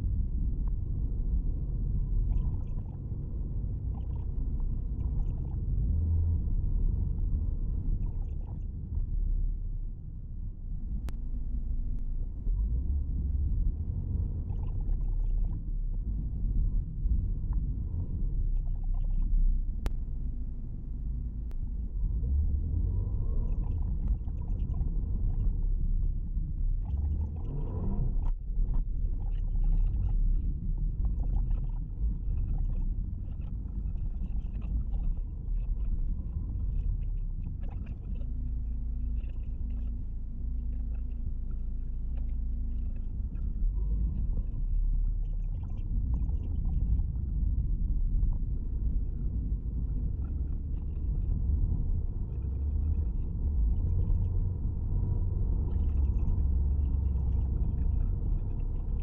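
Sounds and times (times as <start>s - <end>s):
car engine and road noise: 10.7s - 30.9s.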